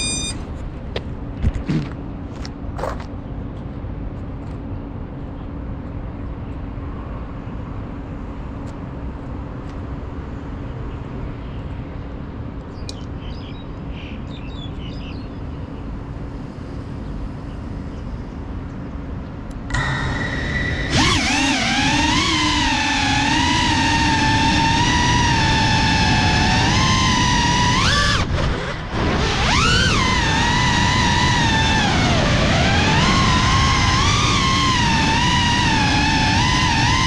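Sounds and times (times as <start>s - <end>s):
bird chirps: 0.0s - 0.4s
outdoor background rumble: 0.0s - 37.0s.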